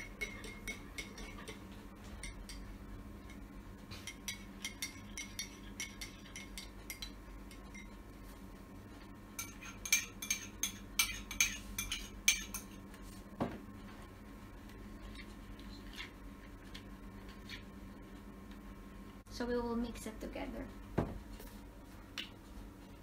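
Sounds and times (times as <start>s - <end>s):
spoon clinking against container: 0.0s - 1.6s, 4.1s - 8.0s, 9.4s - 12.7s.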